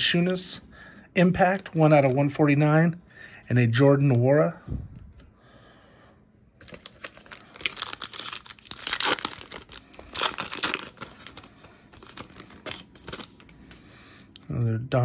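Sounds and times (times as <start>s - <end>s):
card pack wrapper tearing and crinkling: 6.6s - 13.8s.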